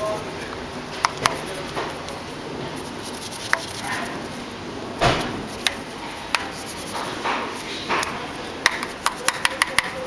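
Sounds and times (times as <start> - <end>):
brush scrubbing wet wheel: 1.1 - 4.5, 5.2 - 10.0
brush knocking on rim: 5.0 - 10.0.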